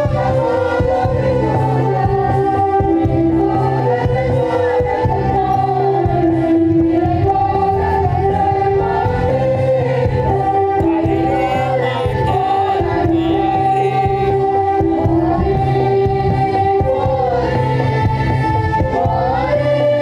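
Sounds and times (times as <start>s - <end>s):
choir singing held notes: 0.0s - 20.0s.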